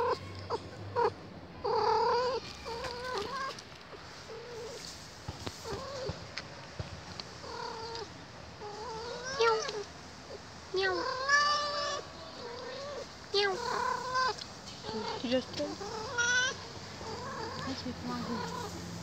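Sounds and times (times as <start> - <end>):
cat meowing: 7.4 - 9.9, 10.8 - 18.7.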